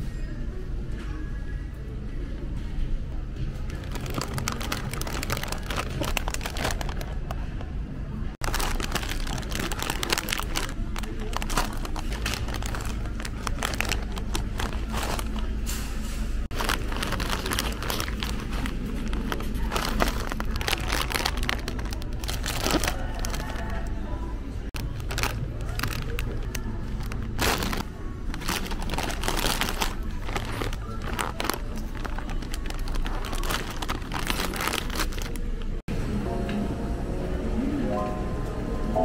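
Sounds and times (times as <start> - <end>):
plastic chip bags crinkling: 3.7 - 7.6, 8.4 - 15.6, 16.5 - 24.1, 24.7 - 35.6.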